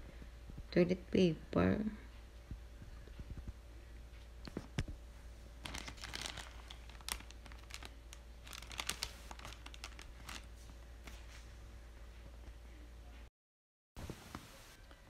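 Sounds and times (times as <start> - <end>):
steady low hum: 0.0 - 13.3
plastic wrap crinkling: 5.6 - 11.3.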